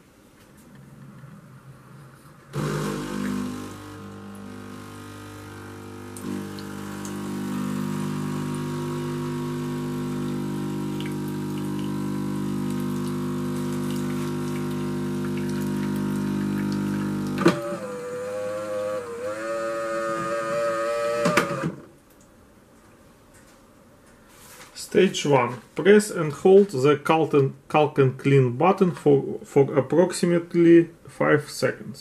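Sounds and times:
coffee machine pump humming: 2.5s - 21.9s
water flowing into jug: 2.6s - 21.5s.

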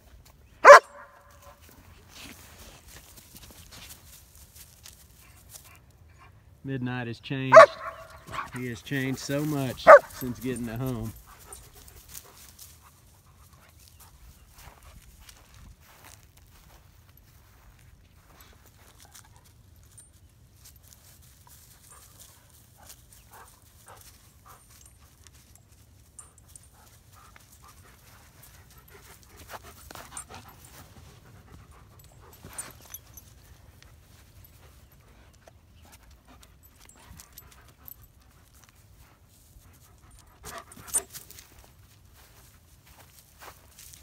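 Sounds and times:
paws scuffing on dry grass: 0.0s - 5.9s, 7.5s - 44.0s
dogs sniffing: 7.5s - 14.0s, 21.6s - 41.4s
dogs panting: 7.5s - 44.0s.

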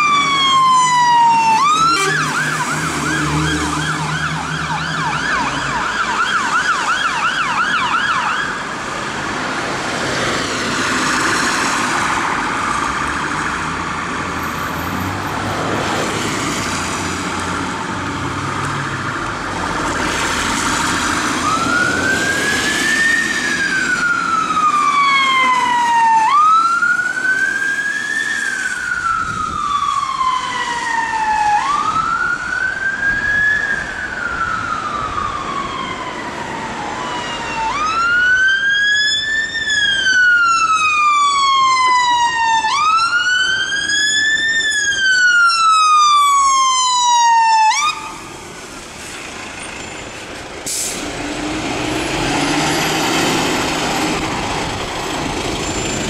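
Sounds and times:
fast yelp siren: 0.0s - 8.6s, 21.4s - 48.3s
slow wailing siren: 0.0s - 13.2s, 13.8s - 48.8s, 51.0s - 56.0s.

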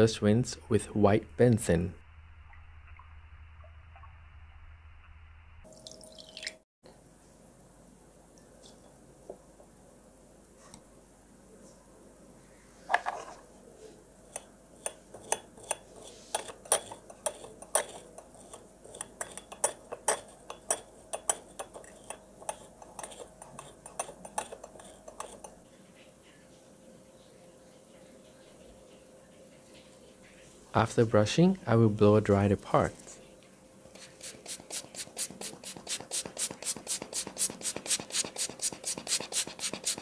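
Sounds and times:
brush scrubbing metal plate: 34.0s - 40.0s.

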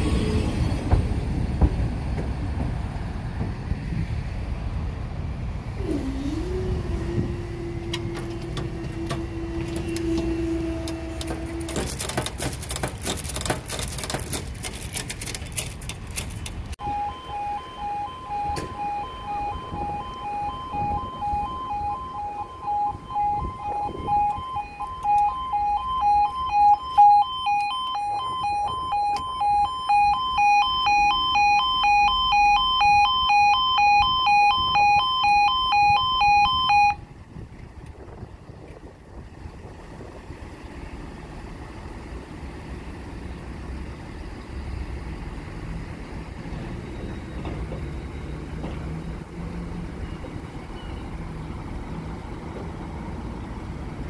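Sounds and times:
train rumble and hum: 0.0s - 16.8s, 37.1s - 54.0s
level crossing alarm beeping: 16.8s - 37.1s.

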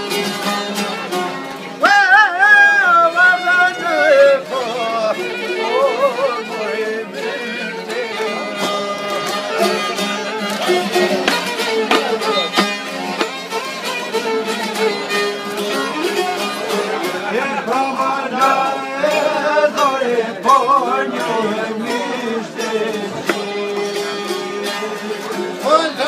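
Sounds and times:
plucked lutes: 0.0s - 26.0s
violin playing wavering melody: 3.0s - 17.1s.

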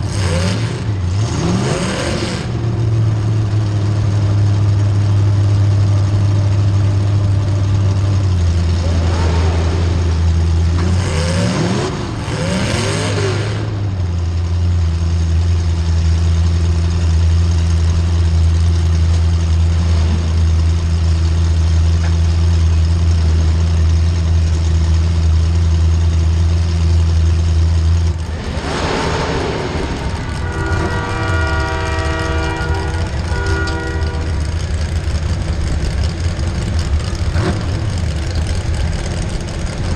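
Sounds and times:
car engine idling: 2.5s - 39.9s
burst of noise: 28.2s - 32.6s
car horn blowing: 30.1s - 34.9s.

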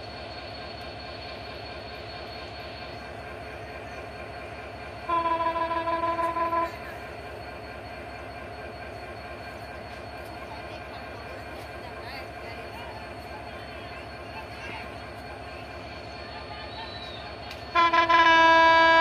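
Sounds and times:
train horn blast: 5.1s - 6.8s, 17.7s - 19.0s.

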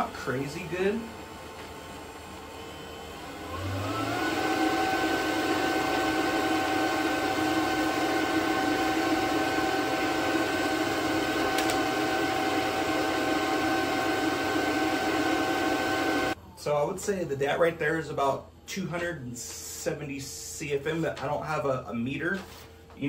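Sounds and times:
air blower fan whining: 0.0s - 16.9s.

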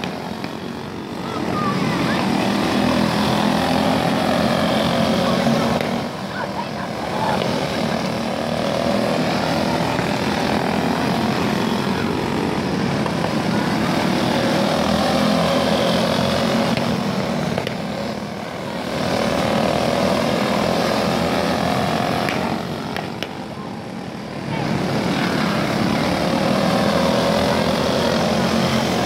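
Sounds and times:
kart engines buzzing past: 0.0s - 29.0s.

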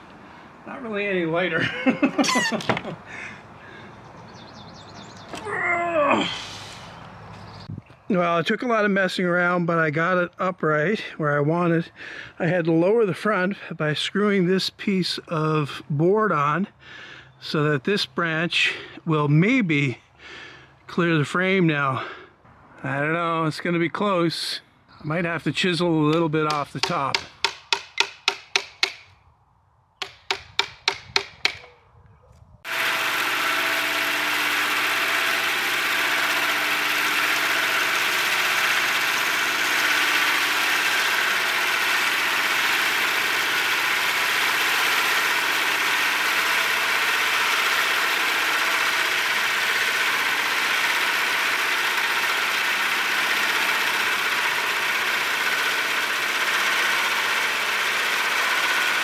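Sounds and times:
band saw cutting log: 0.0s - 3.9s, 26.0s - 29.1s, 30.0s - 31.7s, 32.7s - 59.0s.

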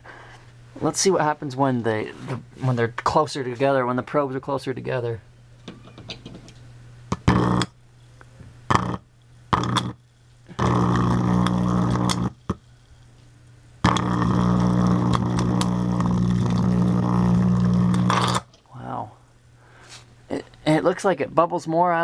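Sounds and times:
loud electrical arcing buzz: 6.5s - 7.9s, 8.7s - 13.2s, 13.8s - 18.6s.

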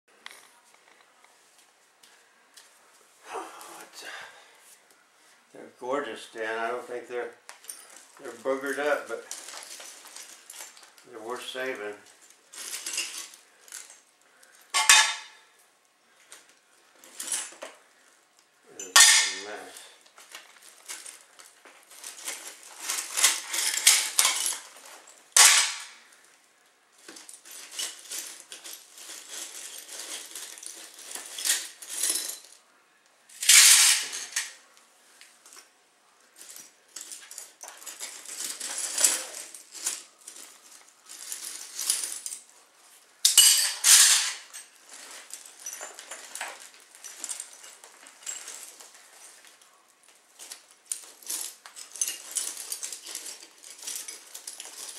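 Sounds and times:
clinking and scraping of frame: 11.6s - 15.6s, 18.7s - 26.3s, 33.3s - 34.6s, 36.4s - 42.5s, 43.2s - 49.7s, 50.4s - 54.9s.

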